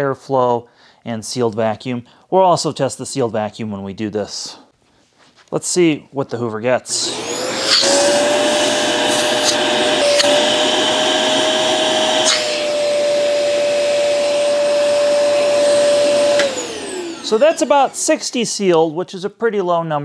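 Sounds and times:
vacuum motor whine: 6.9 - 18.2
air hissing: 7.1 - 10.9.

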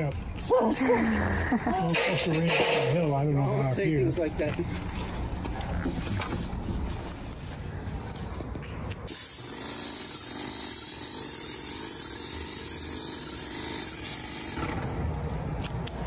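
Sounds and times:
paint sprayer hissing: 9.1 - 15.0.

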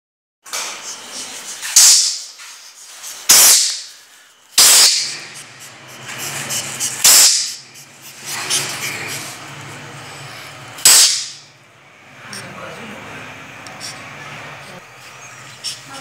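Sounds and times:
mongoose hissing: 4.6 - 9.4, 13.7 - 16.0.

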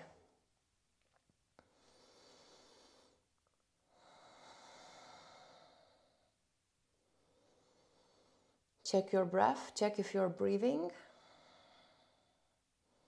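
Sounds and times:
person breathing softly: 1.6 - 8.8, 11.0 - 13.0.

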